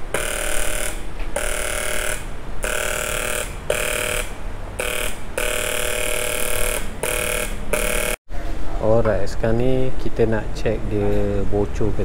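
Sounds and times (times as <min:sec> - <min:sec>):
electric welding arc buzzing: 0:00.0 - 0:08.2.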